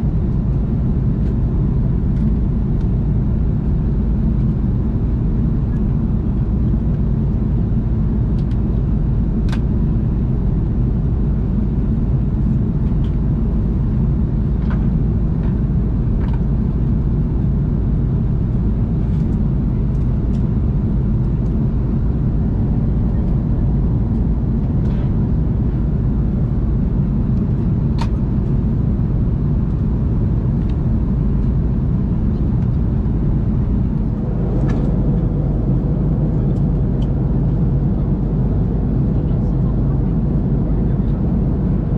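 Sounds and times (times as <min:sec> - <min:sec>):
airplane cabin engine rumble: 0:00.0 - 0:41.9.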